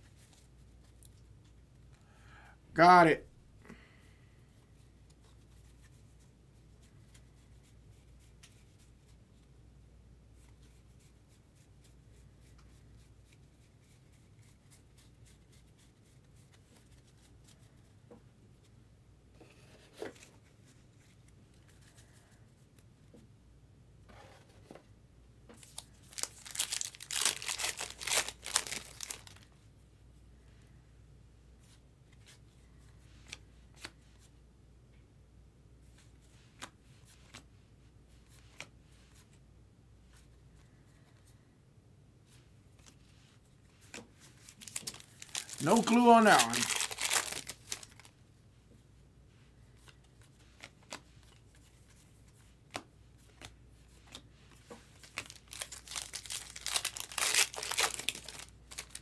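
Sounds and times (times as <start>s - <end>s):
paper wrapper tearing and crinkling: 25.6s - 29.5s, 44.4s - 48.1s, 55.0s - 59.0s
wrapper rustling: 25.6s - 29.5s, 44.3s - 48.1s, 55.0s - 59.0s
cards ticking: 44.7s - 47.5s.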